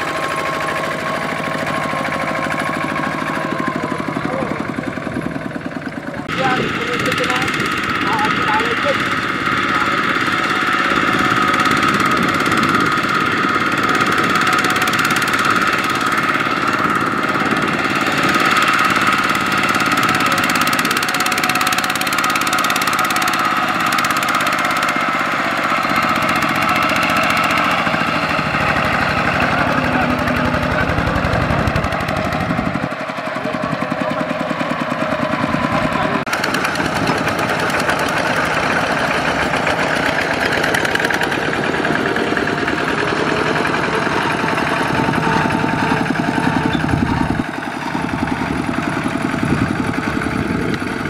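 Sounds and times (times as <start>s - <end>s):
diesel tractor engine under load: 0.0s - 51.0s.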